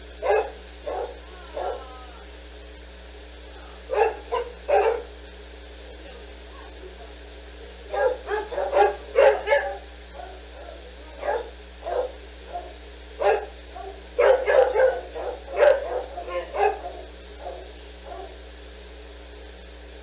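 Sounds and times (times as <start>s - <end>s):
dogs barking: 0.2s - 2.3s, 3.6s - 5.4s, 7.7s - 18.6s.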